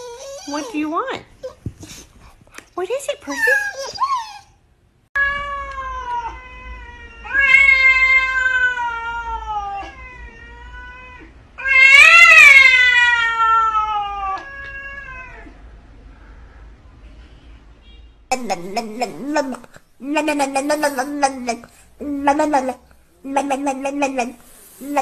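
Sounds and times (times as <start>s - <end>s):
cat yowling: 5.2s - 15.6s.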